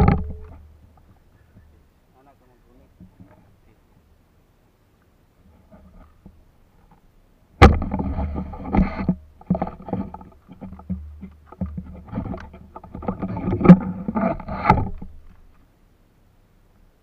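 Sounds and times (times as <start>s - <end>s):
sharp knocks: 7.6s - 15.2s.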